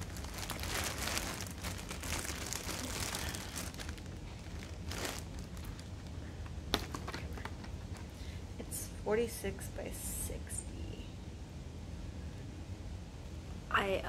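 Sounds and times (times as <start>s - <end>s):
plastic wrapping crinkling: 0.0s - 8.1s.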